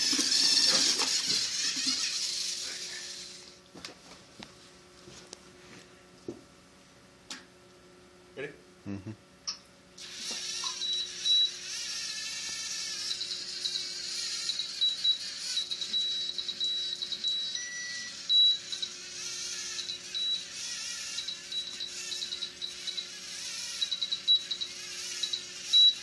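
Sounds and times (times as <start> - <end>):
small electric motors whirring: 0.0 - 3.7, 10.0 - 26.0
short high-pitched tones: 13.0 - 19.0
brief lower tone: 15.9 - 18.6.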